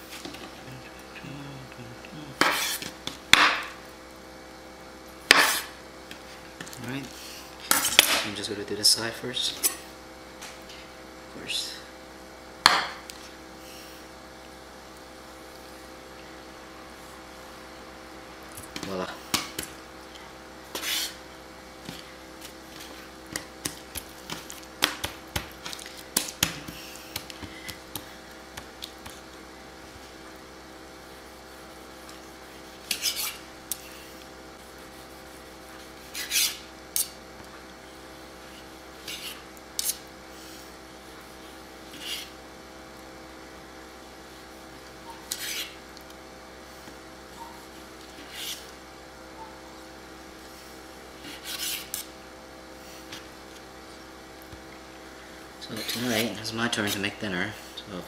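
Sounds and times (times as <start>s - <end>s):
faint steady hum: 0.0s - 58.0s
knife scraping slide: 20.8s - 21.2s, 32.8s - 34.0s, 36.0s - 37.2s, 41.9s - 42.3s, 45.2s - 45.8s, 48.2s - 48.7s, 51.2s - 52.1s.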